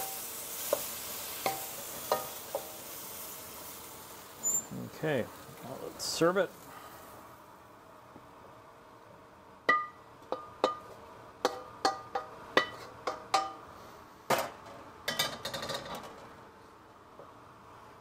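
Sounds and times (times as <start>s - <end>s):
spatula scraping wok: 0.0s - 3.8s, 11.5s - 14.0s.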